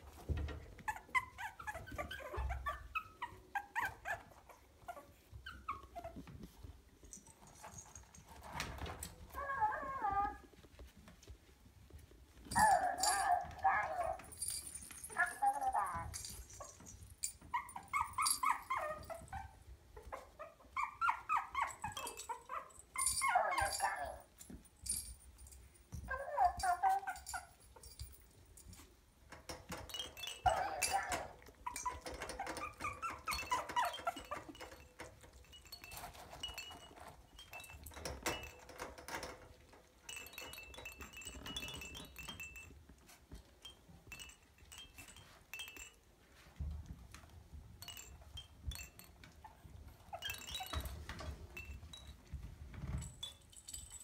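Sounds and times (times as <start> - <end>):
puppy whining and yipping: 0.1 - 6.8, 7.4 - 10.8, 12.4 - 25.0, 26.0 - 28.1, 29.7 - 39.5, 40.1 - 45.9, 47.8 - 52.1.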